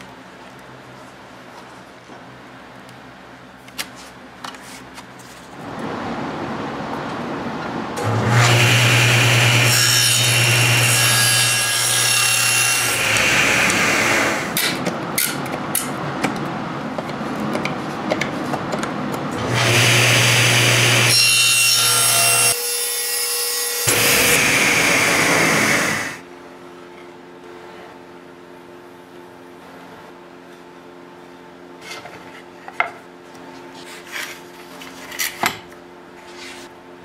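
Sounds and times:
table saw cutting wood: 0:08.0 - 0:14.8, 0:19.4 - 0:26.2.

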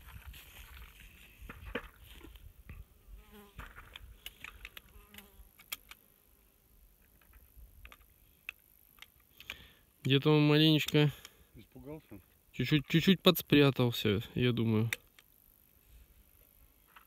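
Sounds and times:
fly buzzing: 0:02.7 - 0:06.5
small scattered clicks: 0:03.6 - 0:06.0, 0:07.0 - 0:11.4.

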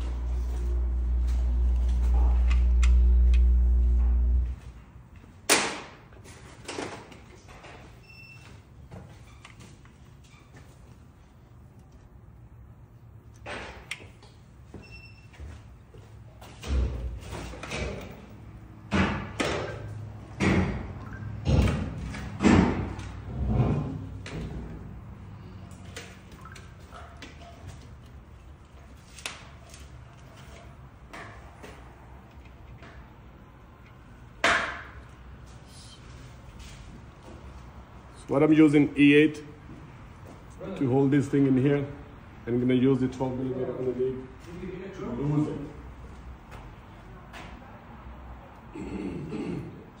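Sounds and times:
low machine hum: 0:00.0 - 0:05.4.

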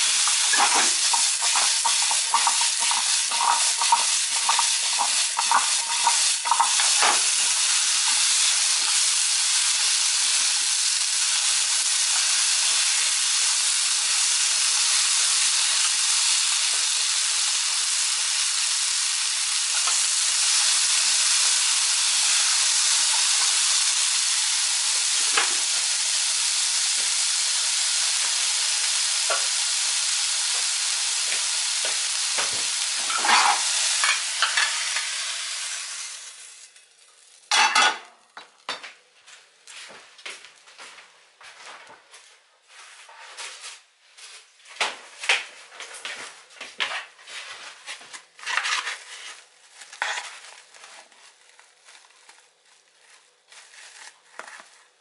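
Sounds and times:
chopsticks stirring in pan: 0:00.0 - 0:11.5, 0:31.3 - 0:35.6, 0:48.4 - 0:55.0
zucchini sizzling in hot oil: 0:00.0 - 0:38.7, 0:48.4 - 0:54.8.

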